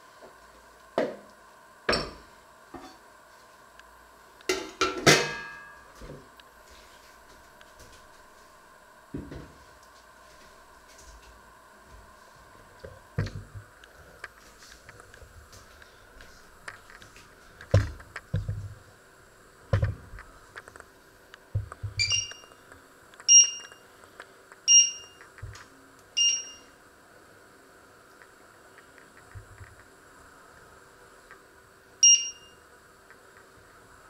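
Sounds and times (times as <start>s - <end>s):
short electronic beeps: 22.0s - 22.5s, 23.3s - 23.8s, 24.7s - 25.2s, 26.2s - 26.7s, 32.0s - 32.6s.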